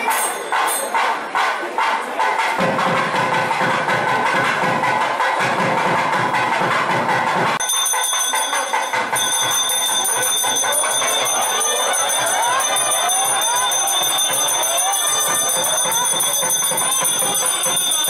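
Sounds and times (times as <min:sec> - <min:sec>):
temple bells ringing: 0:00.0 - 0:01.6, 0:07.6 - 0:18.0
crowd voices: 0:00.0 - 0:18.0
music: 0:00.0 - 0:18.0.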